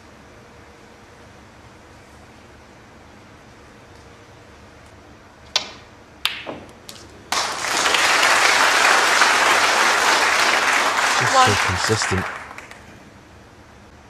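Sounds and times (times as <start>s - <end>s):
crowd applauding: 7.3s - 13.0s.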